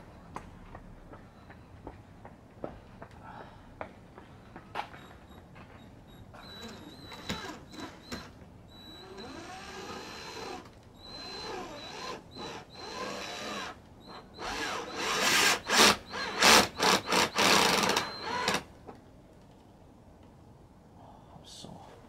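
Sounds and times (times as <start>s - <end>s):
power drill driving screws: 6.4s - 18.7s.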